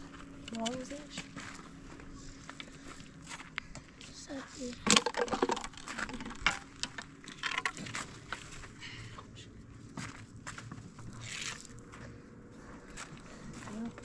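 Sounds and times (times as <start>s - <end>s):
firewood knocking and scraping: 4.8s - 8.6s.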